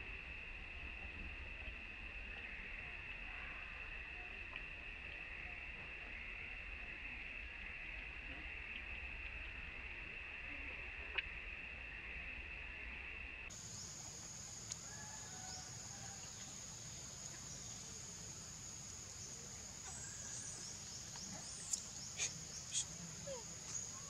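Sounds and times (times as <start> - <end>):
faint bird chirps: 13.6 - 24.0.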